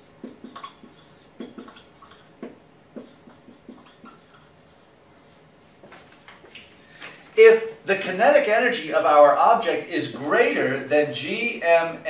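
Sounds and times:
marker scratching on whiteboard: 0:00.0 - 0:06.5.

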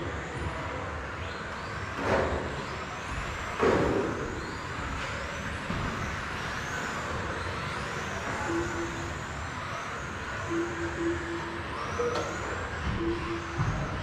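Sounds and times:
electric toy car motors whining: 0:00.0 - 0:14.0
short steady beep: 0:08.4 - 0:09.3, 0:10.4 - 0:14.0.

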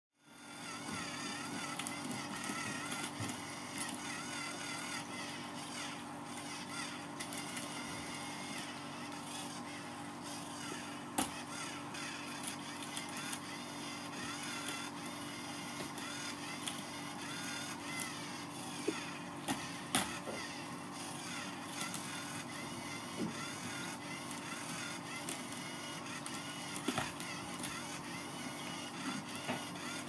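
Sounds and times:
small electric motor whirring: 0:00.2 - 0:30.0.

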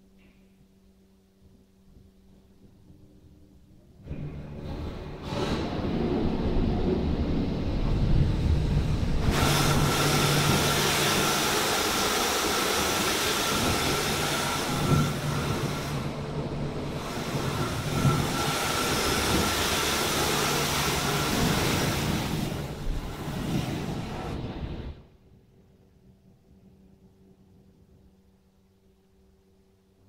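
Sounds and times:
machine hum with faint whine: 0:00.0 - 0:30.0
water spraying over car: 0:08.1 - 0:24.4
rotating brushes sweeping: 0:08.7 - 0:24.4.

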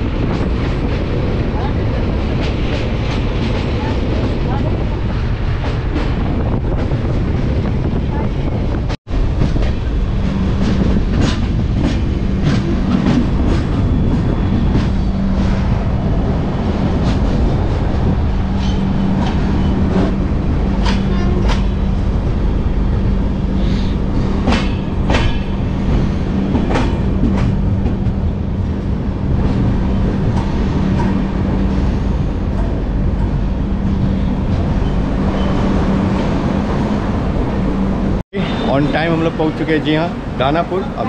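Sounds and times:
train rumble and hum: 0:00.0 - 0:41.0
wheels clacking over rail joints: 0:16.8 - 0:22.9, 0:23.5 - 0:37.9.

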